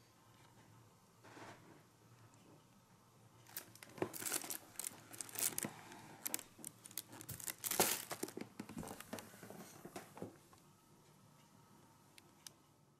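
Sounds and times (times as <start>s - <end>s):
plastic wrapping crinkling: 3.4s - 9.3s.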